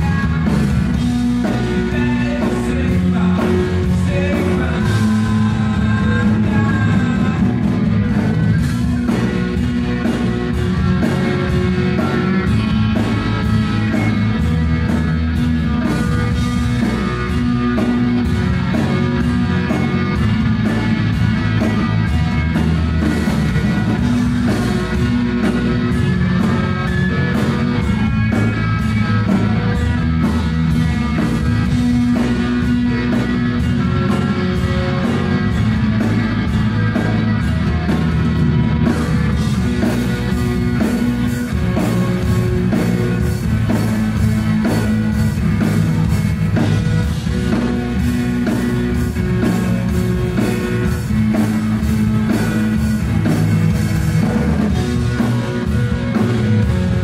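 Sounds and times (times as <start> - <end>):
drum kit beat: 0.0 - 57.0
electric guitars: 0.0 - 57.0.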